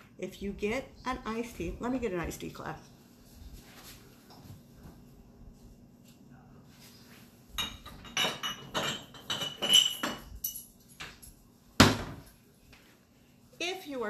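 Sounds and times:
glassware and utensils clinking: 7.5 - 11.4
glass ringing: 7.6 - 10.7.

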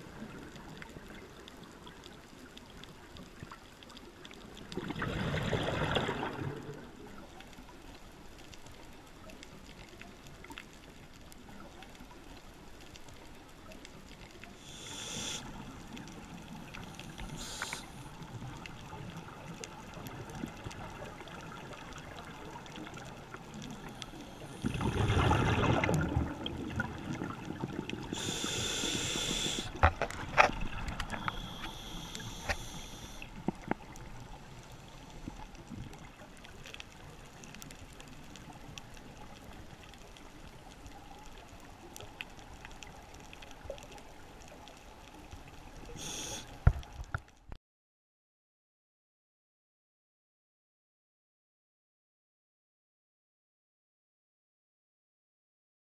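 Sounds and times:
exhaled bubbles underwater: 4.4 - 7.4, 15.5 - 34.6
hissing regulator breaths: 14.6 - 15.6, 17.1 - 18.2, 28.2 - 29.9, 31.1 - 33.3, 46.0 - 46.7.

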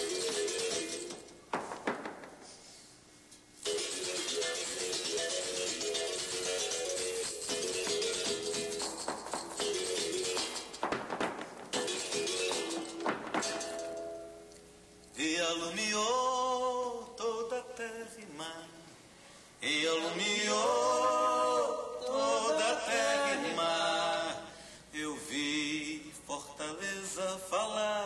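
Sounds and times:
man singing unaccompanied: 15.2 - 18.8, 19.6 - 28.0.

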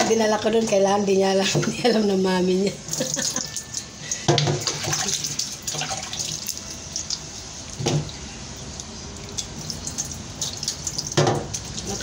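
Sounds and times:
water splashing and dripping: 2.9 - 12.0.

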